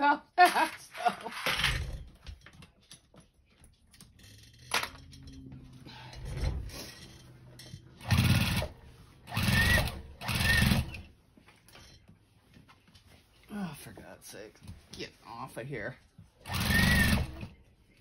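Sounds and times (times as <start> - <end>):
sewing machine stitching: 8.0 - 11.1, 16.4 - 17.6.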